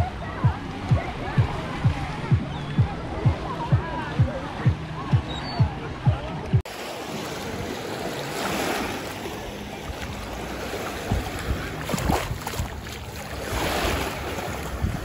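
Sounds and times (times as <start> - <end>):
waves lapping on shore: 0.0 - 15.0
splashes of wading feet: 6.7 - 15.0
wind noise on microphone: 10.9 - 15.0.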